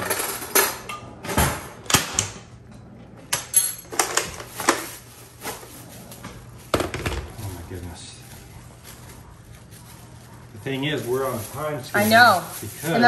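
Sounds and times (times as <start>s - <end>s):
kitchen utensils clicking and clinking: 0.0s - 2.3s, 3.3s - 5.7s.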